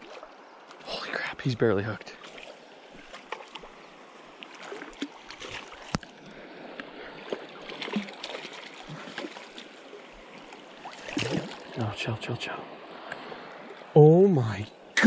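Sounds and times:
creek water rushing: 0:00.0 - 0:15.0
fish splashing at surface: 0:07.3 - 0:09.7.

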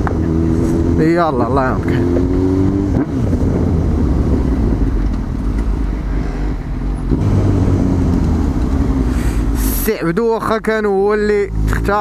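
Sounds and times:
wind rumble at microphone: 0:02.0 - 0:09.1.

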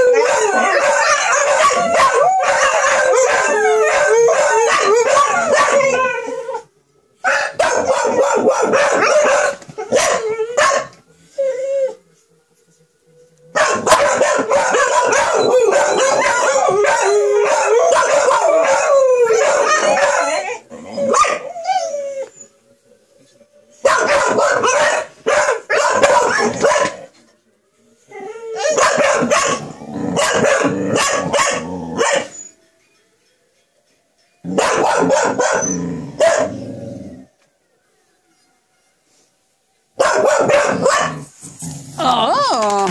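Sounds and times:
dog howling: 0:00.0 - 0:12.0, 0:13.7 - 0:22.5
dog yipping and barking: 0:00.2 - 0:06.0, 0:07.3 - 0:10.9, 0:13.6 - 0:21.6, 0:23.9 - 0:27.0, 0:28.6 - 0:29.6, 0:30.2 - 0:32.5, 0:34.6 - 0:36.6, 0:40.0 - 0:41.2.

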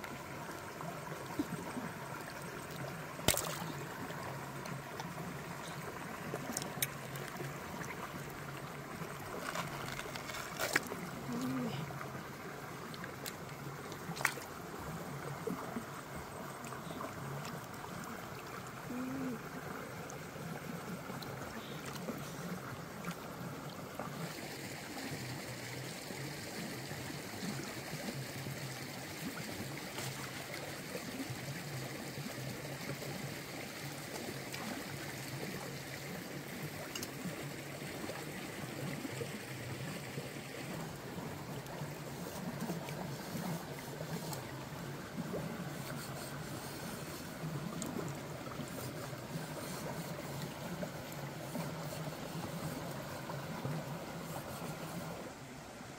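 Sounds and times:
stream water trickling over rocks: 0:00.0 - 0:55.9.

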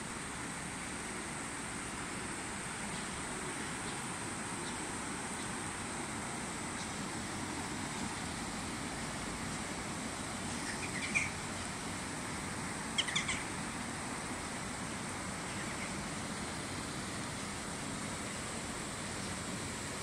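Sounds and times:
river water rushing: 0:00.0 - 0:20.0
small bird chirping: 0:10.5 - 0:11.7, 0:13.0 - 0:13.5.

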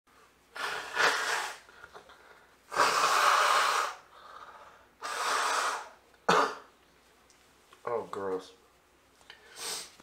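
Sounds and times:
person blowing nose: 0:00.5 - 0:01.8, 0:02.7 - 0:04.1, 0:05.0 - 0:06.6, 0:09.5 - 0:10.0.

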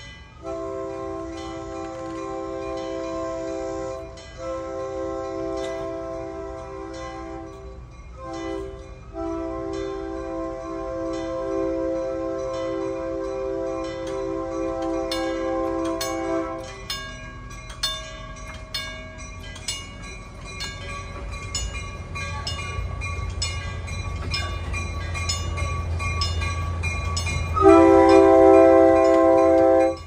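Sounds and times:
crossing signal bell ringing: 0:00.0 - 0:30.0
locomotive rumble: 0:00.0 - 0:30.0
locomotive horn blast: 0:00.4 - 0:16.8, 0:27.6 - 0:30.0.

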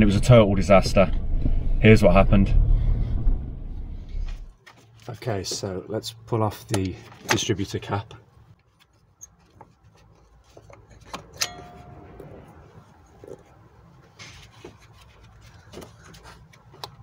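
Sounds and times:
sharp ringing click: 0:11.4 - 0:12.2
plastic clicks and rubbing: 0:14.2 - 0:17.0.

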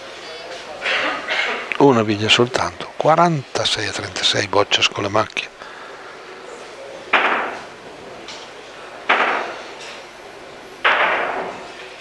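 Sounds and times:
sharp knocks: 0:07.1 - 0:07.6, 0:10.8 - 0:11.6.

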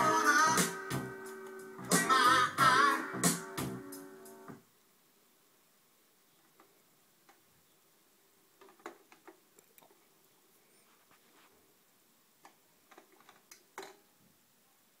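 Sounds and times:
faint irregular clicks: 0:08.6 - 0:10.4.

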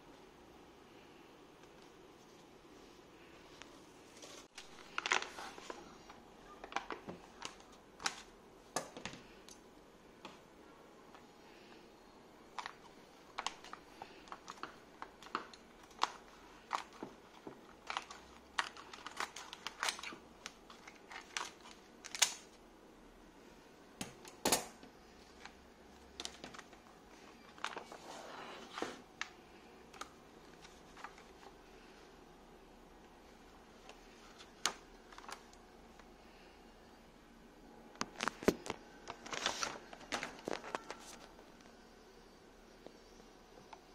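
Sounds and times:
plastic packaging crinkling: 0:04.2 - 0:08.3, 0:12.4 - 0:22.6, 0:25.2 - 0:29.3, 0:38.0 - 0:41.7.

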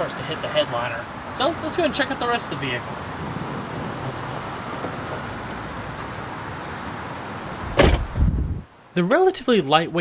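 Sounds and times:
outdoor background hiss: 0:00.0 - 0:10.0
loud thump: 0:07.7 - 0:08.4.

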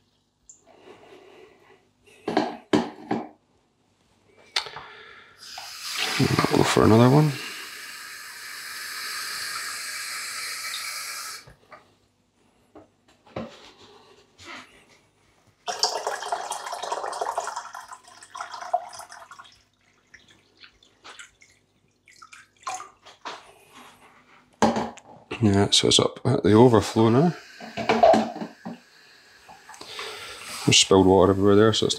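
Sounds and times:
water poured splashing: 0:05.4 - 0:07.5, 0:15.7 - 0:23.3.

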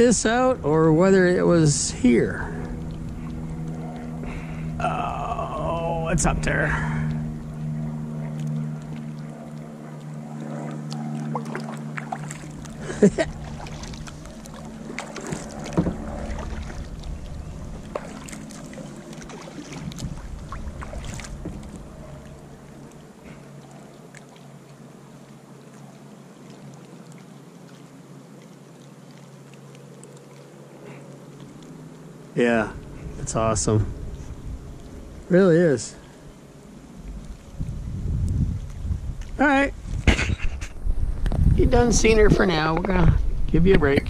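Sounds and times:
low steady hum: 0:00.0 - 0:44.0
water splashing from paddle: 0:06.7 - 0:32.0
paddle knocks: 0:14.9 - 0:16.8.

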